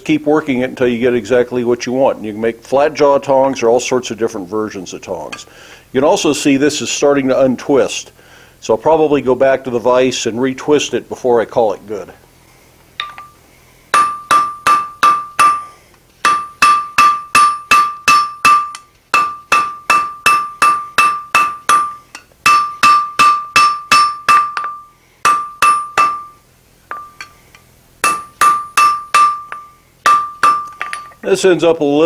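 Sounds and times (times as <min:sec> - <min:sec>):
anvil ringing: 0:13.0 - 0:27.4, 0:28.0 - 0:31.2
hammer striking metal on anvil: 0:13.0 - 0:27.4, 0:28.0 - 0:31.2.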